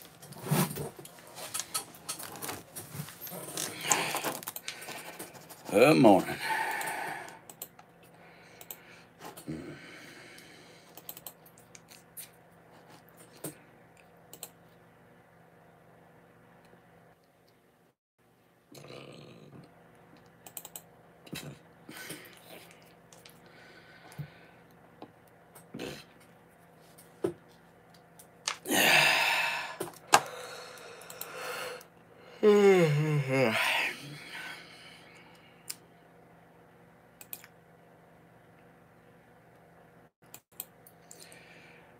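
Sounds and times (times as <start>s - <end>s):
faint steady hum: 0.0s - 41.9s
man yawning: 28.7s - 30.6s, 32.3s - 34.6s.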